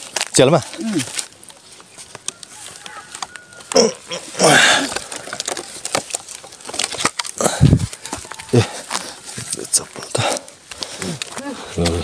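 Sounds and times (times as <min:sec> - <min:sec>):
person grunting: 0:03.7 - 0:05.0.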